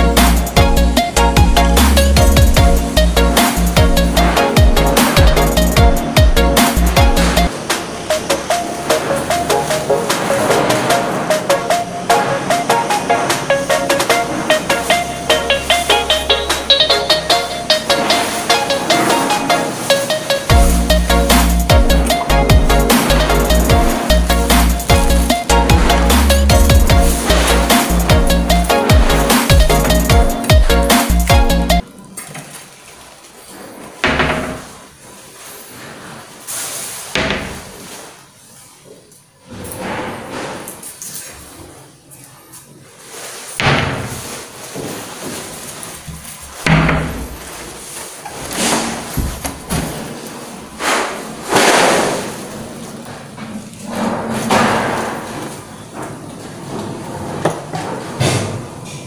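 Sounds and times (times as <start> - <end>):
rushing noise: 0.0 - 31.8.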